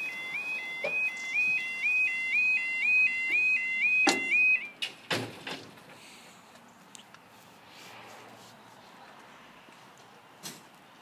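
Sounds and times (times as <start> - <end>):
two-tone crossing alarm: 0.0 - 4.8
crossing gates clunking: 3.2 - 6.0.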